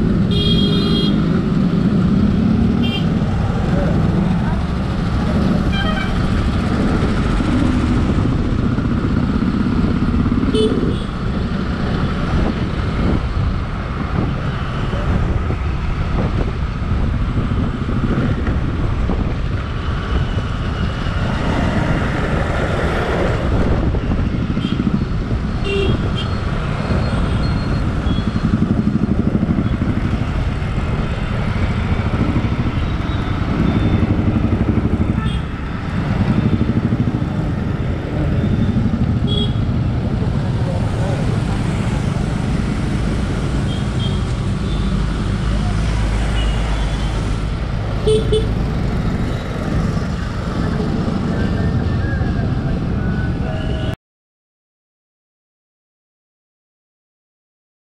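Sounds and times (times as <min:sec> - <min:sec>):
surrounding traffic: 0:00.0 - 0:54.0
motorcycle engine running: 0:28.0 - 0:44.8.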